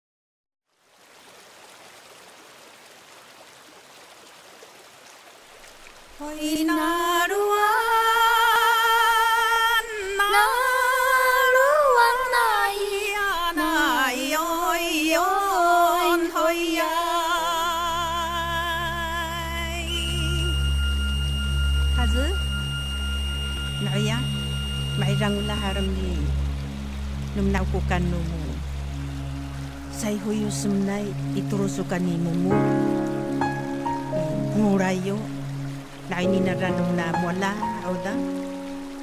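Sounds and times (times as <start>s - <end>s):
low musical accompaniment: 14.6s - 39.0s
high melody with vibrato: 19.8s - 26.5s.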